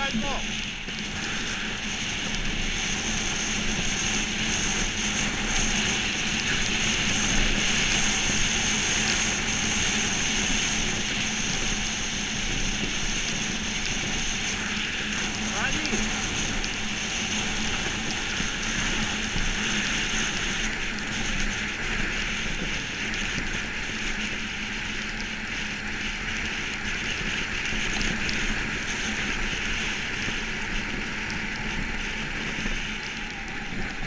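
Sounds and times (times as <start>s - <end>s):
iceboat runners hissing on ice: 0.0s - 23.8s.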